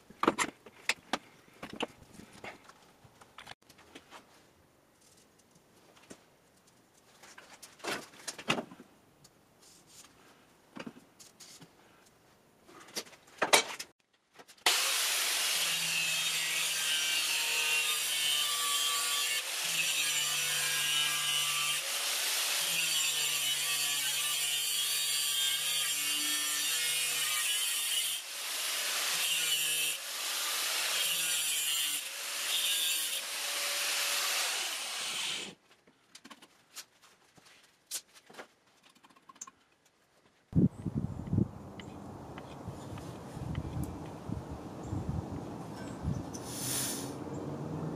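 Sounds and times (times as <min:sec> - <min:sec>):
angle grinder cutting steel: 0:14.7 - 0:35.6.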